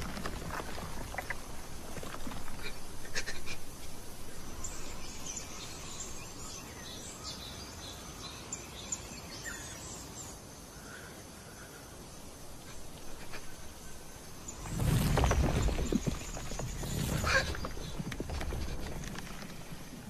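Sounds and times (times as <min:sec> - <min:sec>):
insect calls: 0:00.0 - 0:20.0.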